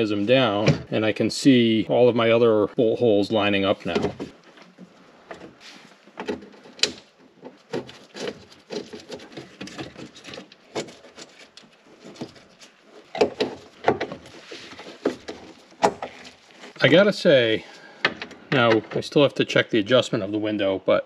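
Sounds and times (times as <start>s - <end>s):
rustling of gloved hands: 7.5s - 18.0s.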